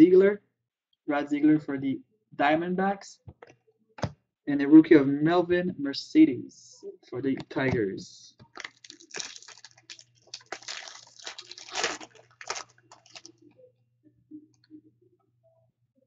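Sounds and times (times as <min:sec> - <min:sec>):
card pack wrapper crinkling: 0:08.5 - 0:13.4.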